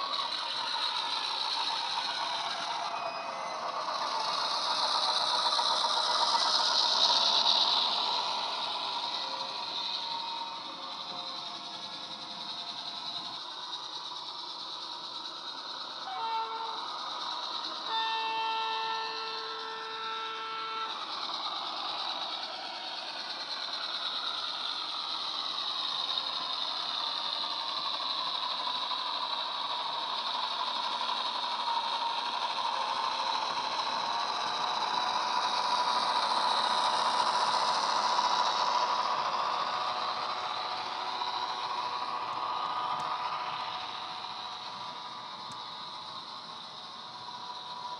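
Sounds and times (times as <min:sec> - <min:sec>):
diesel engine sound under load: 0:00.0 - 0:47.9
model train horn: 0:16.0 - 0:17.0, 0:17.8 - 0:21.0.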